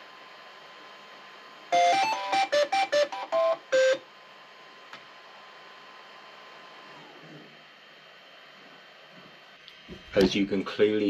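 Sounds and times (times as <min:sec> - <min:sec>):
printer beeping melody: 0:01.8 - 0:04.0.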